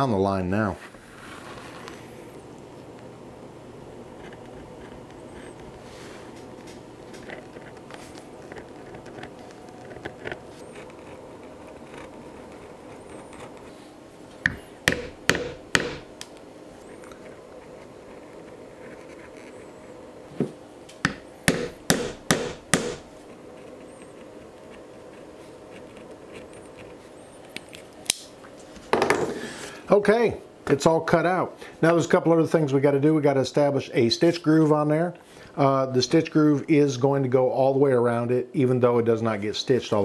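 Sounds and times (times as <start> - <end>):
sharp knocks: 14.4 - 16.1, 20.4 - 23.1.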